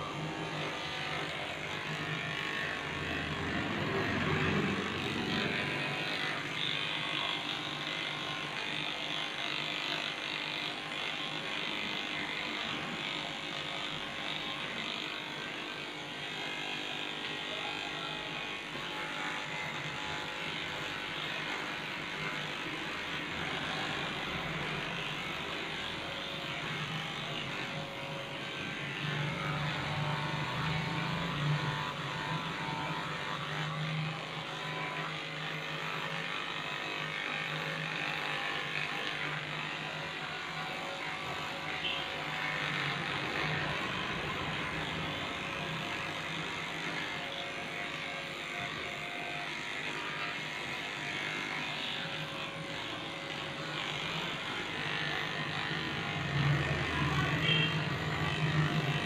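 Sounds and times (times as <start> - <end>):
electric clipper buzzing: 0.0 - 59.0.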